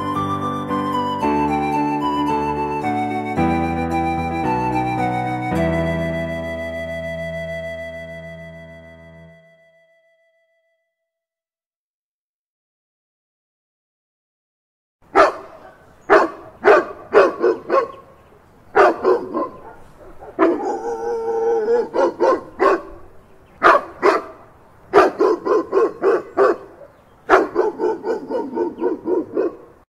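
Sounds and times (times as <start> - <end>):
dog barking: 15.1 - 18.2, 18.8 - 29.8
dog howling: 18.8 - 22.9.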